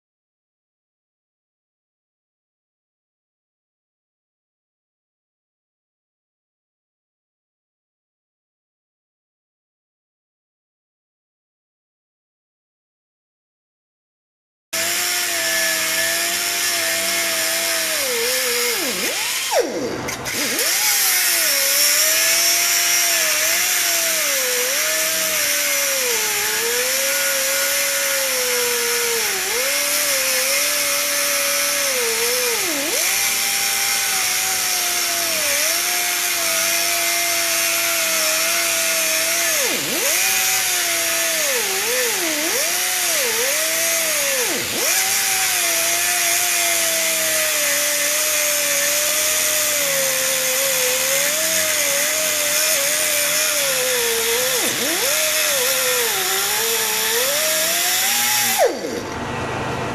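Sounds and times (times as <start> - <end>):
angle grinder cutting steel: 14.8 - 59.9.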